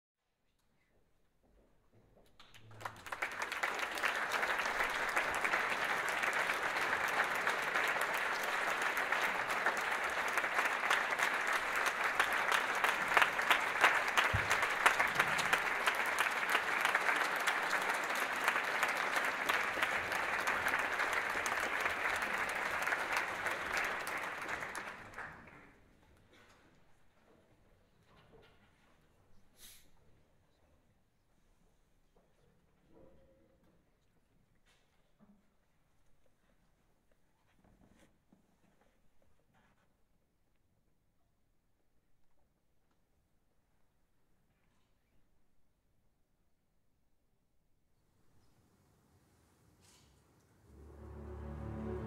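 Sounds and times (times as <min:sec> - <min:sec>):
audience applauding: 0:02.4 - 0:25.7, 0:50.7 - 0:52.0.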